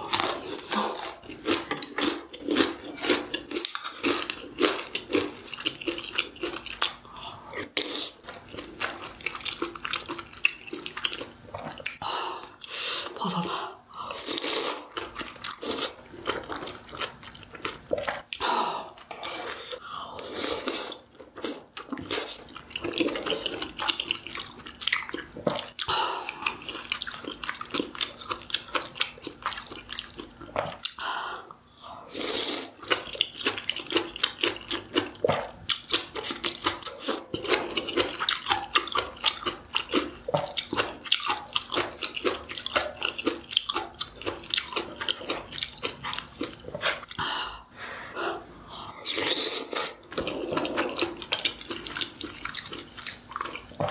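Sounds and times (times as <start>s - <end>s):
person chewing and biting: 0.0s - 12.0s, 20.4s - 31.0s, 32.4s - 47.2s, 49.1s - 53.9s.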